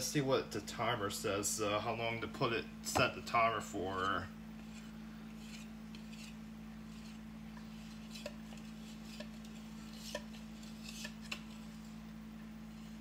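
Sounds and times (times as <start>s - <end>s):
batter scraped from a bowl: 4.6s - 12.0s.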